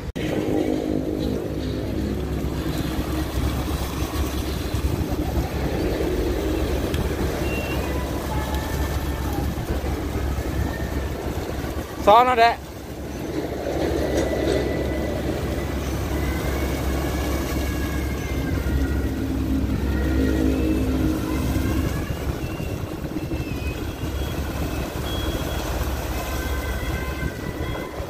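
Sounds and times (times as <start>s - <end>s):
water splashing onto ground: 0.2s - 14.1s.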